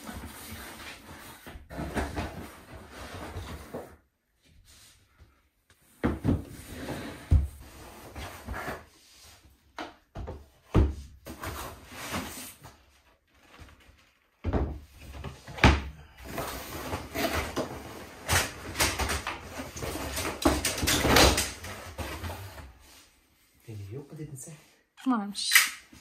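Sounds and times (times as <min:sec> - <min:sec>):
wooden panels knocking and clattering: 0:17.2 - 0:22.4.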